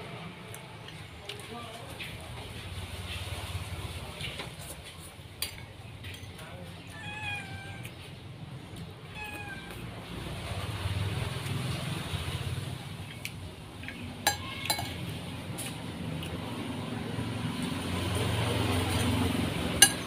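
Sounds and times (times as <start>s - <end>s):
meow-like animal calls: 6.8s - 7.9s, 9.0s - 9.9s, 14.3s - 15.0s.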